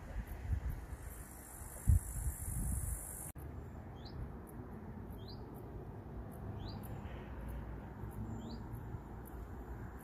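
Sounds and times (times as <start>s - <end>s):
small bird chirping: 1.1s - 4.3s, 5.1s - 5.7s, 6.5s - 7.1s, 8.0s - 9.4s.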